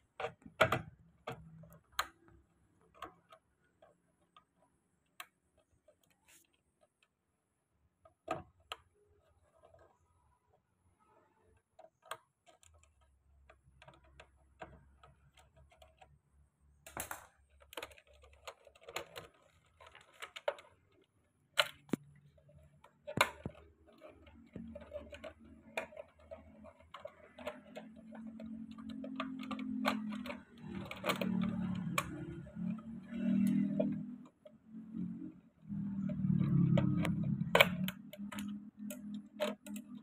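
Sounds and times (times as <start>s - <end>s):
plastic box scraping: 17.0s - 40.0s
screwdriver clicks and taps: 21.6s - 35.1s, 35.7s - 40.0s.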